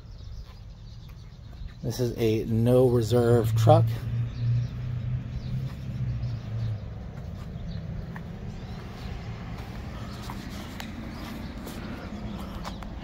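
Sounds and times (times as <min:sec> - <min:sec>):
truck engine idling: 0:05.3 - 0:13.0.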